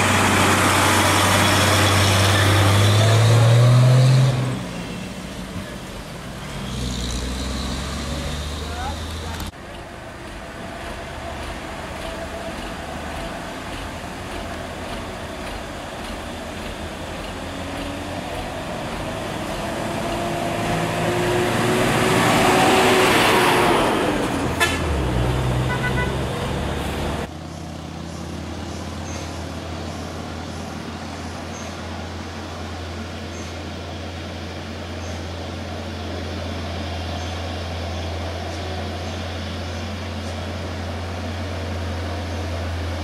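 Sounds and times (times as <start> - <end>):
diesel trucks climbing: 0.0 - 43.0
brief horn toot: 25.6 - 26.2.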